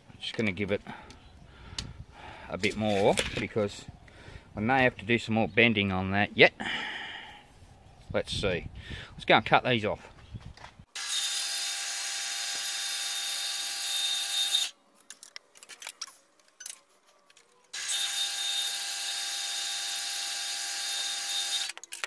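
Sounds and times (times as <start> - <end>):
band saw cutting metal: 11.0 - 14.7, 17.7 - 21.8.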